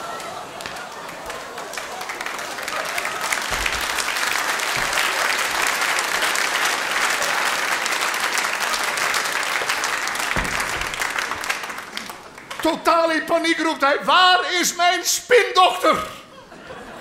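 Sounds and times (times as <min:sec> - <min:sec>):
audience applauding: 0:00.0 - 0:13.3.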